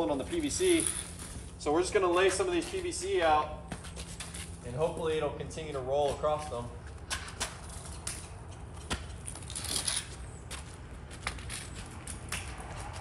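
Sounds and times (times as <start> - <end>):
crunching scrape: 9.2 - 10.4.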